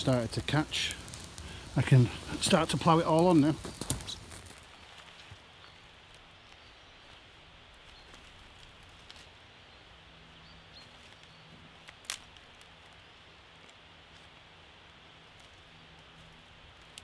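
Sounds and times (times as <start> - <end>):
small fire crackling: 0.0 - 17.0
twig snapping: 0.9 - 1.6, 3.6 - 5.2, 11.0 - 14.3, 16.8 - 17.0.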